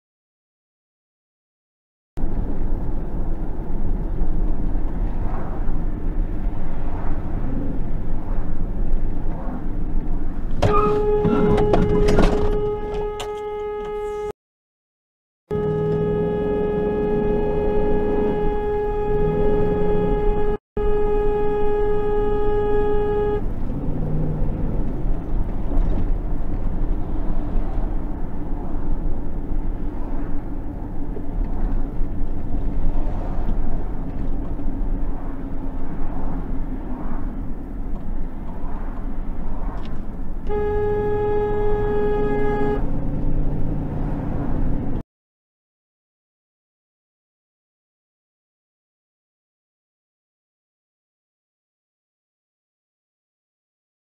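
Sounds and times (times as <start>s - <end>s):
car engine and road noise: 2.2s - 14.4s, 15.5s - 45.0s
car horn blast: 10.6s - 14.3s, 15.5s - 23.5s, 40.4s - 43.0s.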